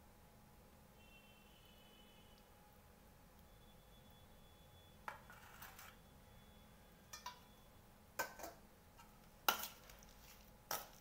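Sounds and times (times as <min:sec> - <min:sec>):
spoon clinking against metal bowl: 0:07.1 - 0:07.5.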